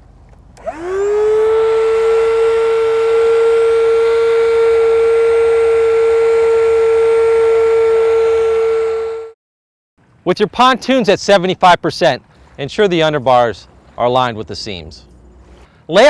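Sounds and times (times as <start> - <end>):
electric air pump whining: 0.6 - 9.4.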